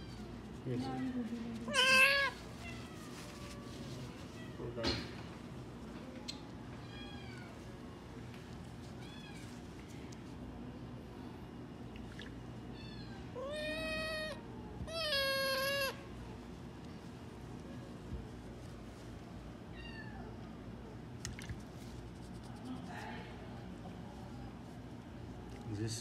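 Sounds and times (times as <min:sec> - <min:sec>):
kitten mewing: 0:01.7 - 0:02.8, 0:13.4 - 0:16.0.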